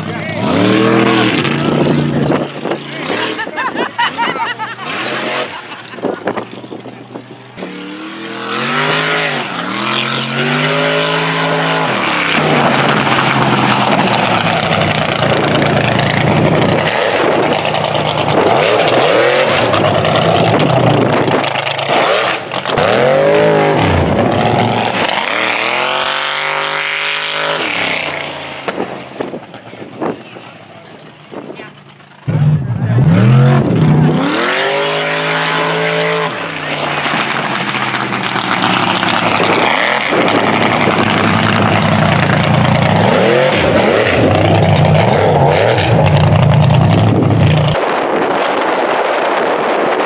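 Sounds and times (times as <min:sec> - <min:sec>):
truck engine revving hard: 0:00.0 - 0:31.6, 0:32.2 - 0:48.7.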